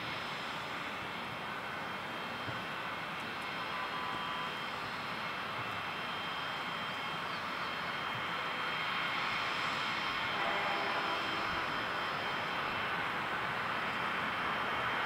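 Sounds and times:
aircraft engines running: 0.0s - 15.0s
thin high whine: 9.5s - 15.0s.

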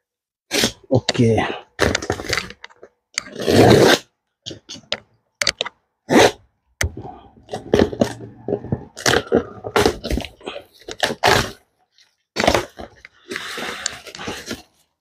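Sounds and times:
packing tape tearing: 10.9s - 11.6s.

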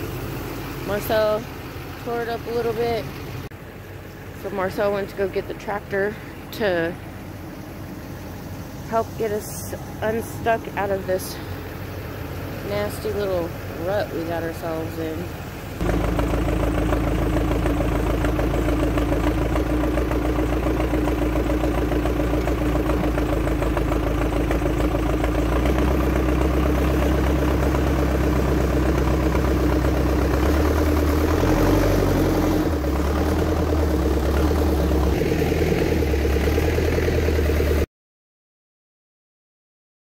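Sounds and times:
diesel engine under load: 0.0s - 37.9s.

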